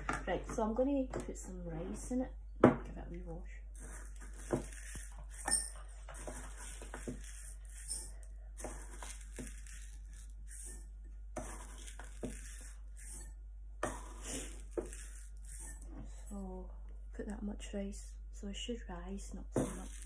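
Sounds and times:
dry rice grains rustling: 3.8 - 13.3, 14.0 - 16.4, 19.6 - 20.0.

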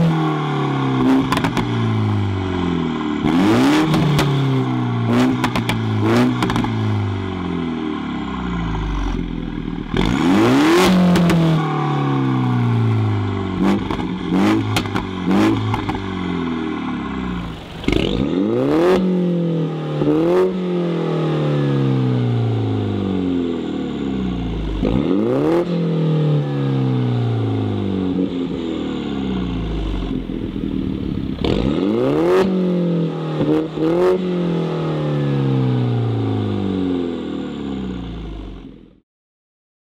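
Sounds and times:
car engine revving: 0.0 - 38.8
exhaust pops and crackles: 1.2 - 1.7, 5.2 - 5.8, 6.4 - 6.8, 13.7 - 16.0.

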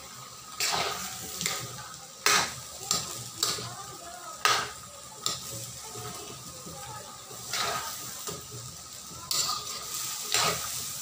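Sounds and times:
food sizzling: 0.0 - 11.0
metal spatula scraping wok: 0.5 - 3.7, 7.3 - 8.6, 9.3 - 11.0.

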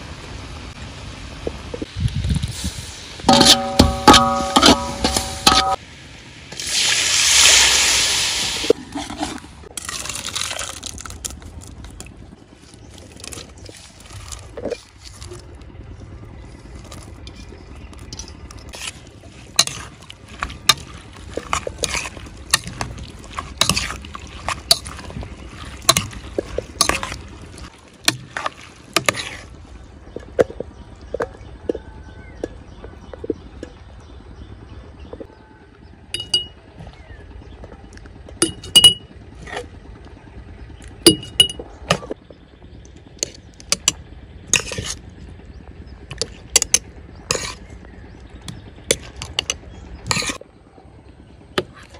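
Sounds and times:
ringing taps on pot: 3.3 - 5.8, 36.2 - 36.6
spoon scraping metal pot: 3.3 - 5.8, 18.1 - 20.0, 20.7 - 22.9, 23.6 - 25.1, 46.2 - 47.6, 48.9 - 50.4.

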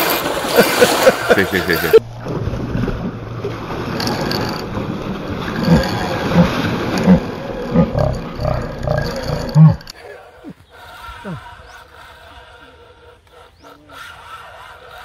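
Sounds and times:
fish thrashing and splashing: 0.0 - 9.9.

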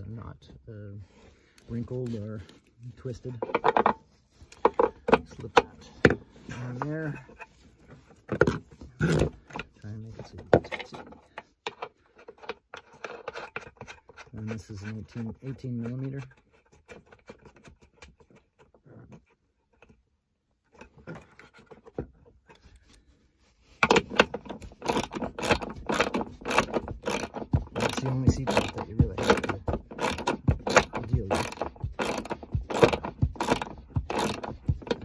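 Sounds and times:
faint handling sounds: 0.0 - 24.8
ratchet wrench clicking: 23.8 - 35.0.

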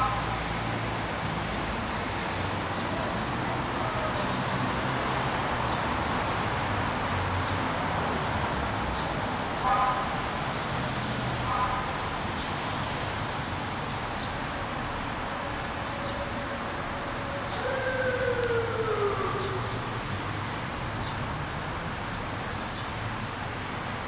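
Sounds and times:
street traffic: 0.0 - 24.0.

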